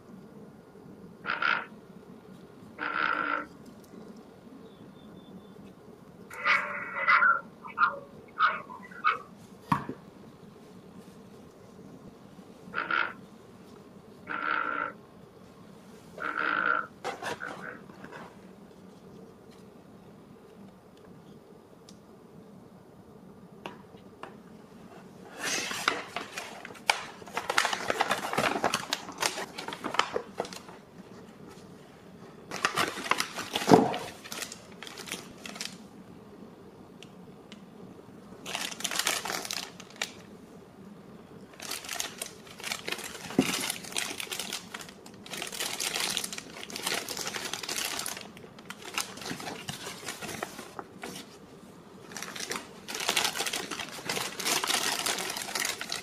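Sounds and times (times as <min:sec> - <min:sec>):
plastic bags crinkling: 0:25.3 - 0:30.9, 0:32.5 - 0:35.8, 0:38.4 - 0:40.3, 0:41.4 - 0:51.4, 0:52.0 - 0:56.0.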